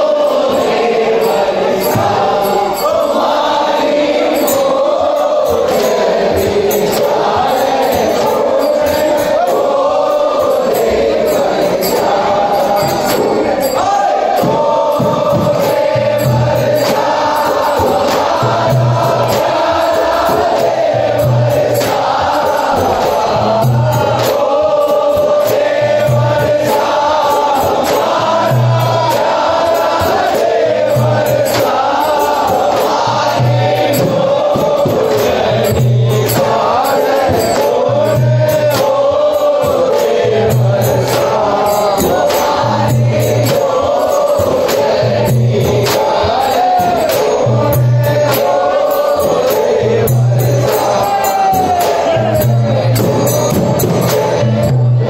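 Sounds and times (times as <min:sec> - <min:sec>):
crowd singing along: 0:00.0 - 0:55.0
men singing over pa: 0:00.0 - 0:55.0
deep drum beat: 0:12.0 - 0:55.0.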